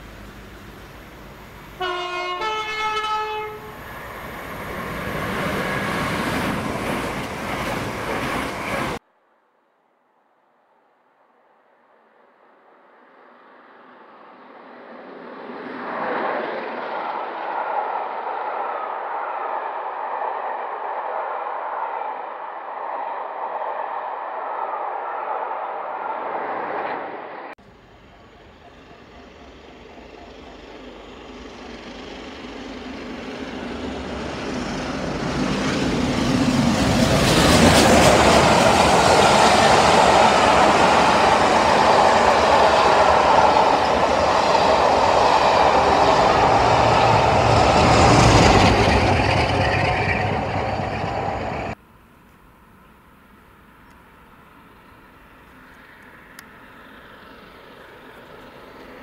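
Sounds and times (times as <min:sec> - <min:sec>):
passenger train passing: 0:00.0 - 0:09.0, 0:12.1 - 0:51.8, 0:53.3 - 0:59.0
train wheels rushing on rails: 0:00.0 - 0:09.0, 0:28.3 - 0:51.8.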